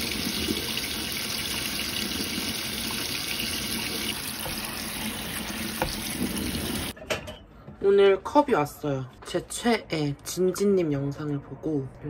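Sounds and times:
tap water splashing on grapes: 2.9 - 6.9.

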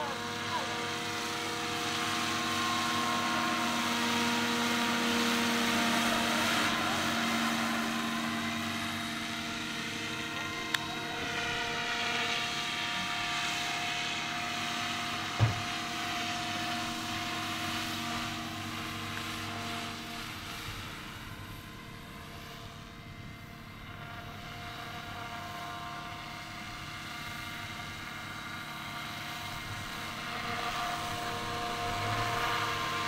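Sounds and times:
model helicopter rotor whine: 0.0 - 33.0.

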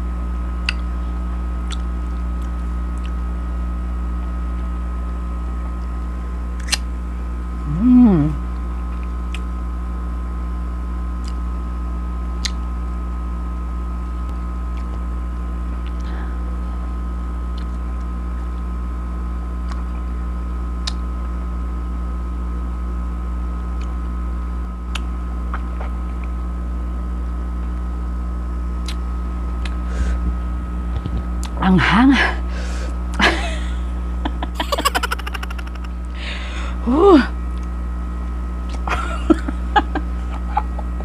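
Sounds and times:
steady low hum: 0.0 - 41.0
person chewing fruit: 0.6 - 0.9, 1.6 - 3.2, 11.2 - 11.4, 12.4 - 12.6, 17.5 - 18.0, 20.8 - 21.0, 24.9 - 26.3, 28.8 - 29.0.

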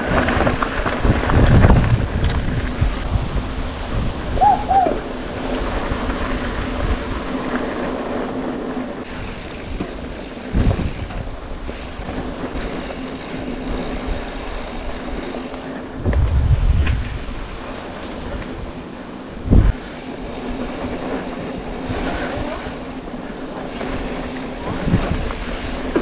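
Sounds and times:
bicycle rattling and humming: 0.0 - 26.0
tyres rolling on dirt: 0.0 - 26.0.

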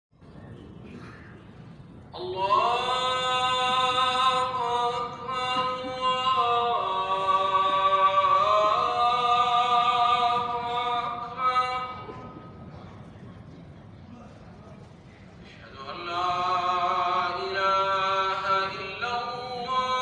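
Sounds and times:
person chanting: 2.2 - 12.2, 15.6 - 20.0.

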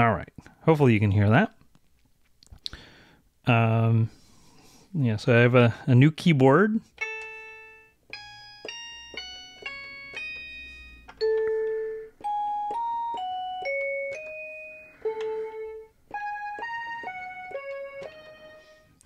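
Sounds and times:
toy keyboard playing melody: 7.0 - 19.0.

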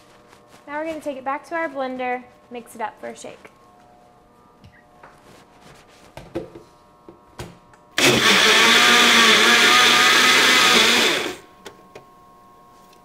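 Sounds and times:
blender motor running: 8.0 - 11.5.

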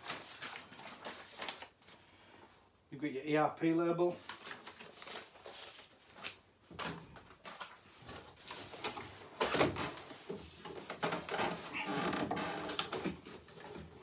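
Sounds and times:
cardboard rustling and scraping: 6.8 - 14.0.

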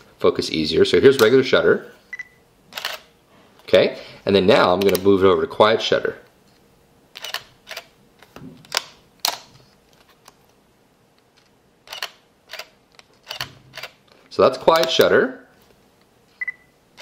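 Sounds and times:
camera shutter clicks: 2.7 - 3.1, 7.2 - 7.9, 11.9 - 14.0.

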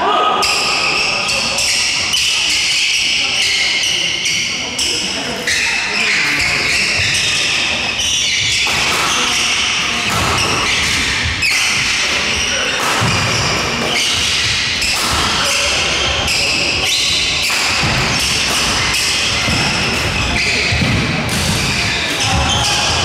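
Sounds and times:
echoing chatter: 0.0 - 23.0
shuttlecock hits: 12.8 - 15.7.

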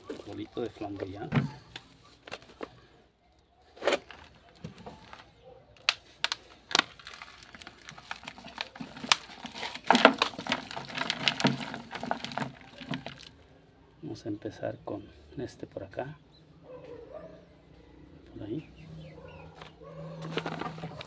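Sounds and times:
soil root ball crinkling and crackling: 0.0 - 14.3, 19.5 - 21.0.

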